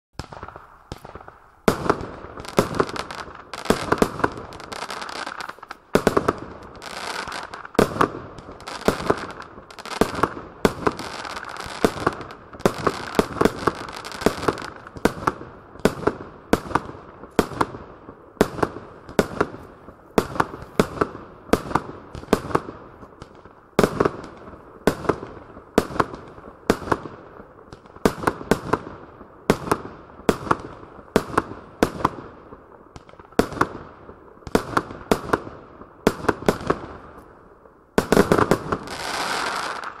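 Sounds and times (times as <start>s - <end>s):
firework bangs: 0.2s - 40.0s
firework crackling: 0.2s - 40.0s.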